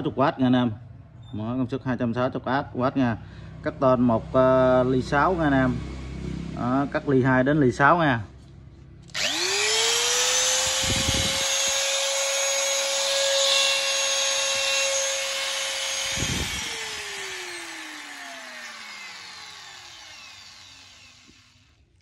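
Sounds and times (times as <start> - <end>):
electric shear motor whining: 9.1 - 21.8.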